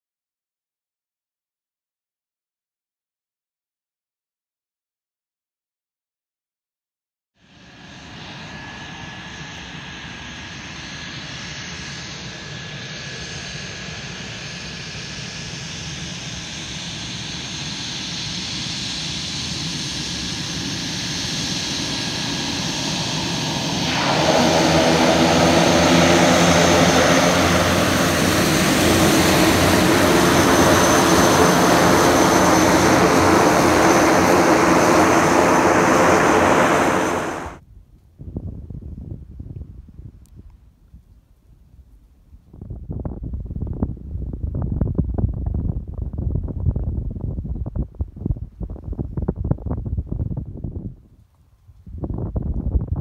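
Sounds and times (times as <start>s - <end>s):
turbine whine: 7.4s - 37.6s
propeller buzz: 8.0s - 37.6s.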